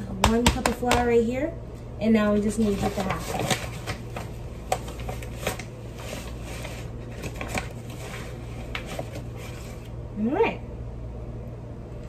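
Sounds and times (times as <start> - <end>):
plastic bag rustling: 2.4 - 9.9.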